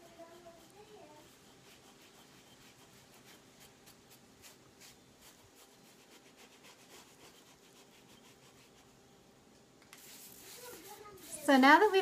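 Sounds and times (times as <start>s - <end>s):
wet cloth rubbing on stone: 0.0s - 8.8s.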